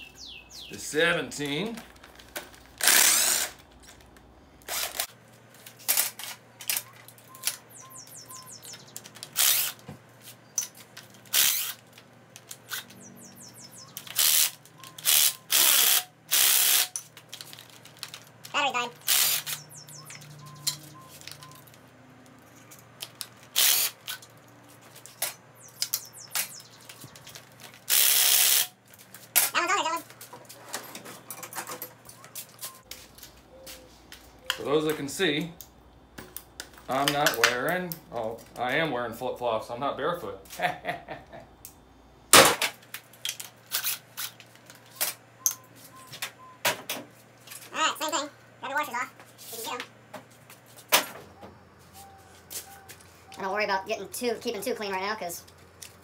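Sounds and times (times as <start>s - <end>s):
cordless driver spinning: 2.8s - 3.6s, 4.6s - 5.1s, 9.3s - 9.8s, 11.2s - 11.8s, 14.0s - 17.0s, 19.0s - 19.7s, 23.5s - 24.1s.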